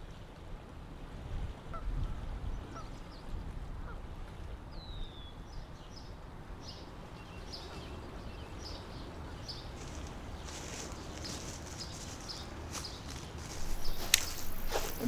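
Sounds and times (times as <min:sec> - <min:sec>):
low background noise: 0:04.3 - 0:15.0
small birds chirping: 0:06.7 - 0:15.0
high hiss: 0:13.6 - 0:15.0.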